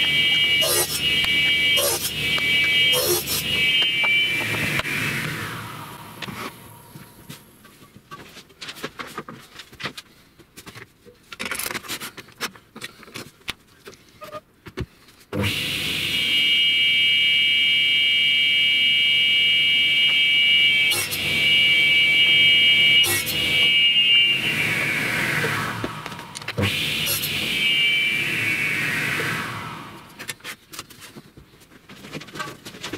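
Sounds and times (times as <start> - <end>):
table saw whining: 0.0 - 7.2, 15.4 - 17.4, 18.3 - 30.4.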